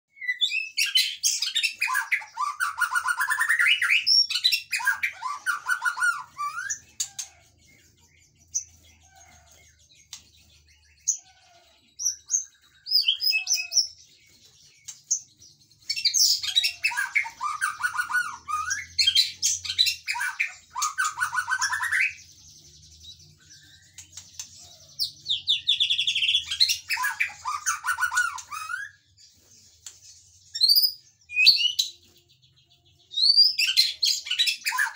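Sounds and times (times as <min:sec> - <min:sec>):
bird singing: 0:00.1 - 0:34.9.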